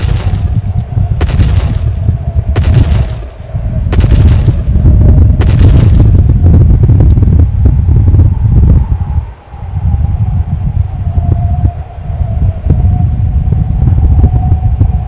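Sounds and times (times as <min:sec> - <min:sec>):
heavy booming giant footsteps: 0:00.0 - 0:07.1
deep steady rumble: 0:00.0 - 0:15.0.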